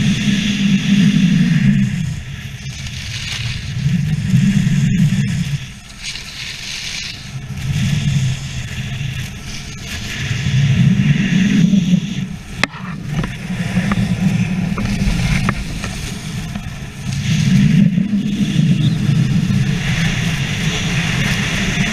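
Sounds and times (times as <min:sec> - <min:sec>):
skis scraping on snow: 0:00.0 - 0:21.9
wind buffeting microphone: 0:00.0 - 0:21.9.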